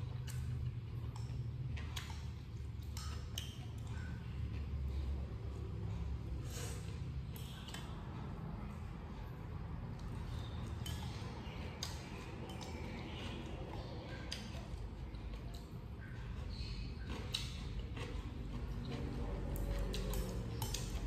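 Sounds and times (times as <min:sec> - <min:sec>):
low steady hum: 0:00.0 - 0:21.0
noodles slurped and chewed: 0:09.1 - 0:21.0.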